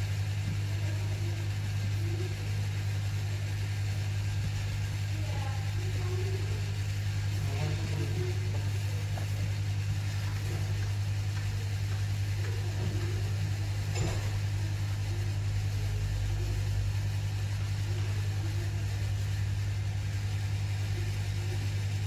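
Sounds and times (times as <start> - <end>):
hot air station hum and hiss: 0.0 - 22.0.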